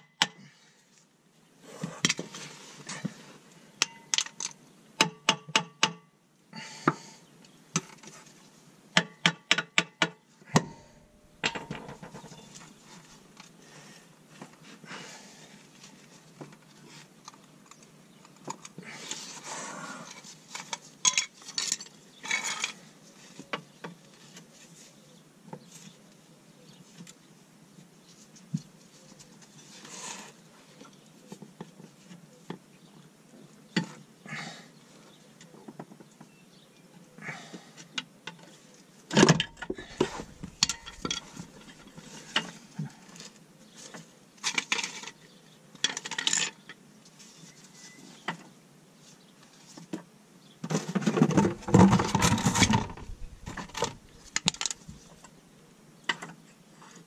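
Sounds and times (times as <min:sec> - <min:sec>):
metal parts scraping: 0:39.4 - 0:41.9, 0:51.4 - 0:55.2.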